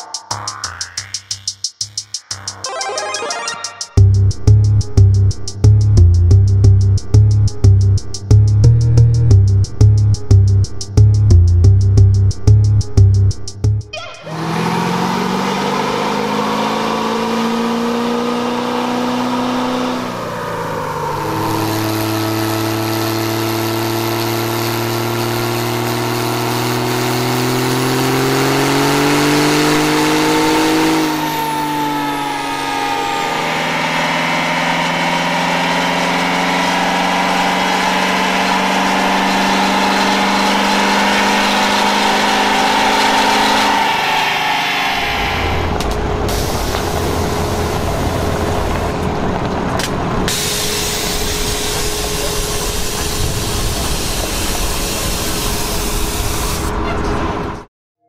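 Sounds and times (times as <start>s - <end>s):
truck engine running under load: 45.7s - 54.6s.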